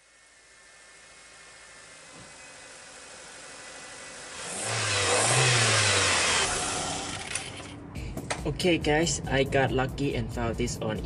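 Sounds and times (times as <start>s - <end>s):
car engine revving: 0.0s - 8.0s.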